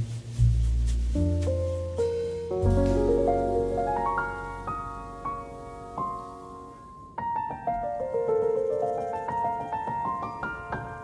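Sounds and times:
gentle piano music: 0.0 - 11.0.

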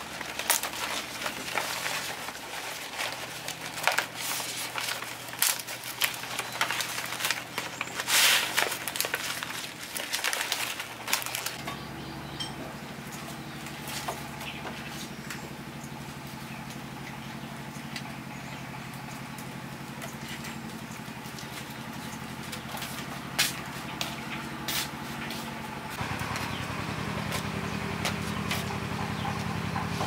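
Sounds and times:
engine idling: 0.0 - 30.0.

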